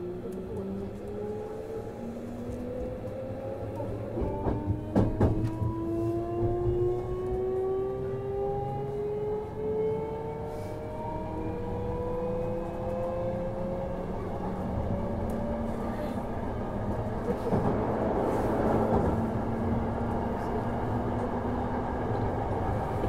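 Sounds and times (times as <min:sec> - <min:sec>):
train wheels rumbling on rails: 0:00.0 - 0:07.6, 0:11.6 - 0:23.0.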